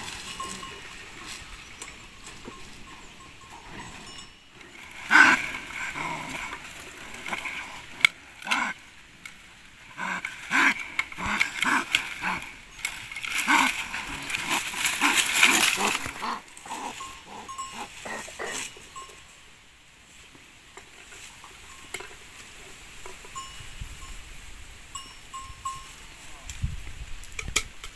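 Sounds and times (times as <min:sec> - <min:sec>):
bamboo leaves rustling: 0:04.7 - 0:18.9.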